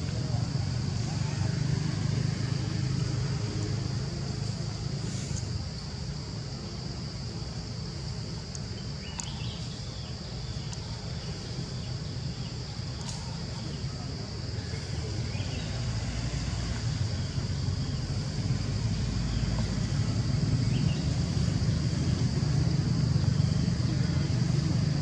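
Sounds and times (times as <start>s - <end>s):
faint clicks: 8.5s - 9.4s.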